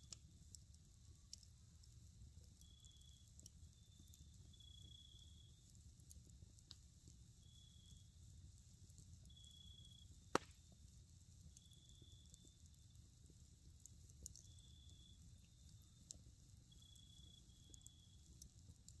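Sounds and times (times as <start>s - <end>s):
campfire crackling: 0.0s - 19.0s
campfire pop: 0.0s - 19.0s
insects trilling: 14.4s - 18.2s.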